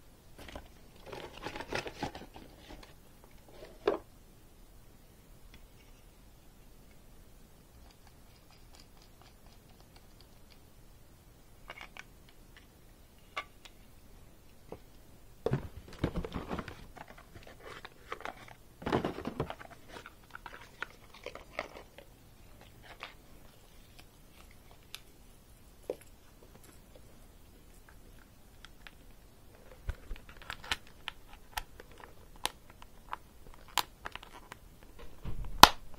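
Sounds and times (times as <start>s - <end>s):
plastic packaging crinkling: 0.4s - 3.0s, 15.8s - 25.0s, 29.6s - 34.6s.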